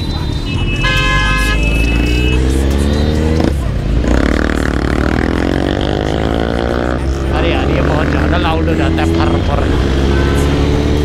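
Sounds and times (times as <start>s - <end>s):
motorcycle engine revving: 0.0s - 11.0s
vehicle horn: 0.4s - 2.6s.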